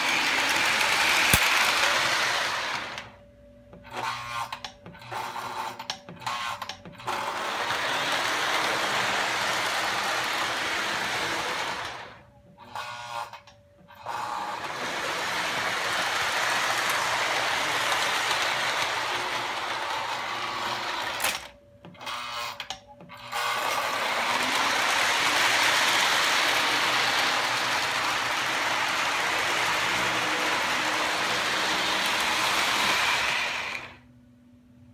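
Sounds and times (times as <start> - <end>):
model train motors whirring: 0.0 - 3.2, 3.9 - 34.0
faint steady hum: 33.8 - 34.9.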